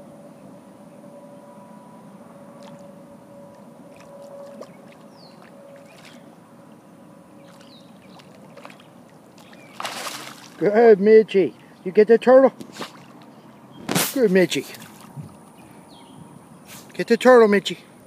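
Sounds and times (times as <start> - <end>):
faint steady hum: 0.0 - 11.9
small water splashes: 2.6 - 2.9, 3.9 - 6.3, 7.4 - 10.7, 12.6 - 15.6
water lapping: 2.6 - 2.9, 3.5 - 10.7, 12.6 - 15.8.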